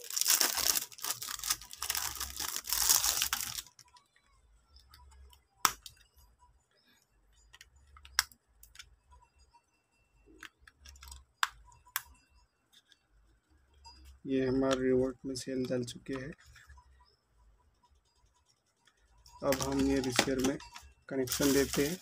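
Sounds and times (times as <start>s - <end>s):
plastic wrapping crinkling and tearing: 0.0s - 3.9s, 21.3s - 22.0s.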